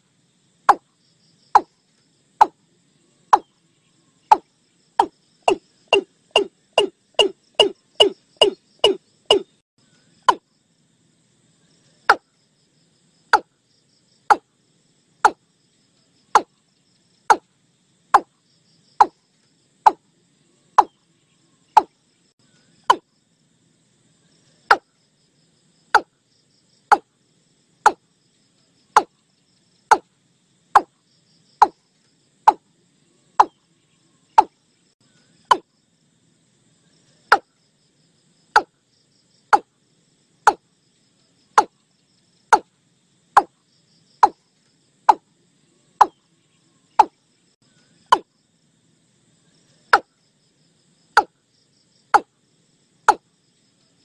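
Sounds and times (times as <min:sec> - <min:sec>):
faint insect chirring: 0:00.0 - 0:54.0
bird calls: 0:02.4 - 0:10.4, 0:19.9 - 0:23.0, 0:32.5 - 0:35.6.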